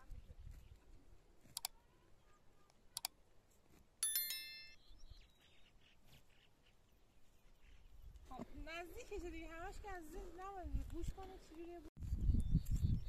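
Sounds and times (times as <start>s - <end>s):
bright metallic ding: 4.0s - 4.8s.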